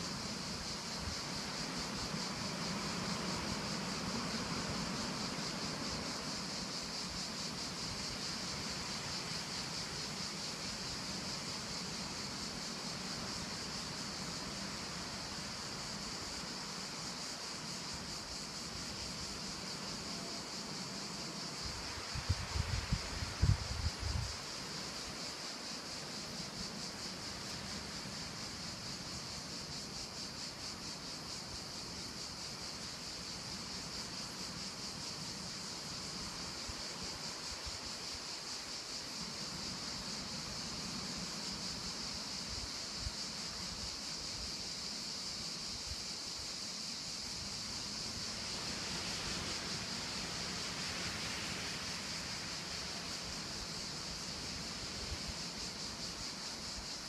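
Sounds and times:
steady high-pitched hiss: 0:00.0 - 0:57.0
wind through trees: 0:00.0 - 0:57.0
wind buffeting microphone: 0:22.0 - 0:24.4.

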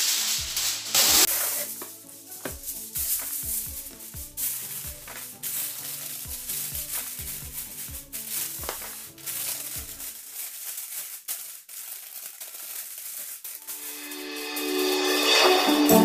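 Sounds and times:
background music: 0:00.0 - 0:10.2, 0:13.6 - 0:16.0
aluminium foil crinkling: 0:00.0 - 0:14.3.

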